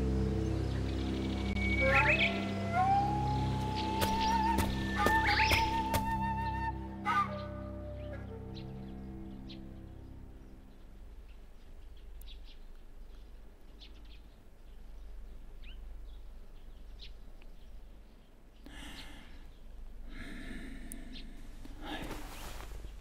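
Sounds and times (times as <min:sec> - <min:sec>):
small birds chirping: 0:00.0 - 0:23.0
breathy sound: 0:18.7 - 0:22.7.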